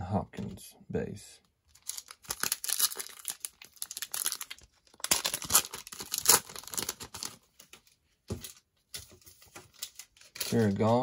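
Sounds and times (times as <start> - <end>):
plastic wrapper tearing and crinkling: 1.7 - 7.8, 9.5 - 11.0.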